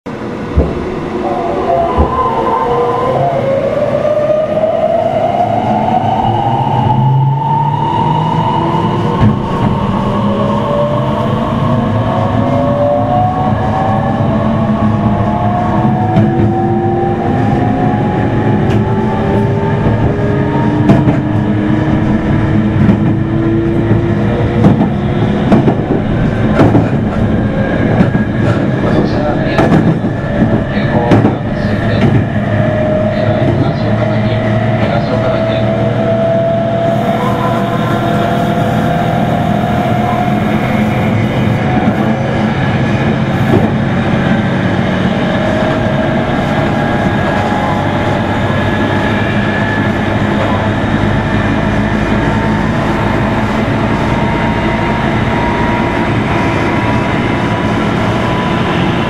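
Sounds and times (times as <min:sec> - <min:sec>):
train running rumble: 0:00.1 - 0:05.4, 0:08.4 - 0:59.0
electric train motor whine: 0:36.6 - 0:42.2.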